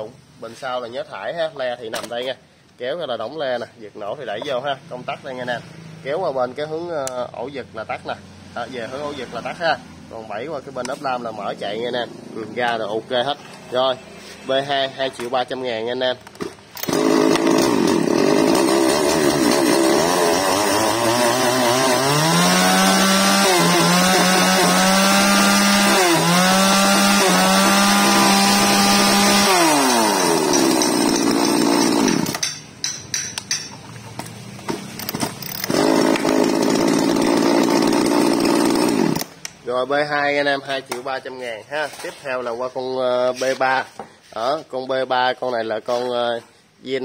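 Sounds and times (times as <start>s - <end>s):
chainsaw idling and revving: 16.8s - 32.6s, 35.4s - 39.5s.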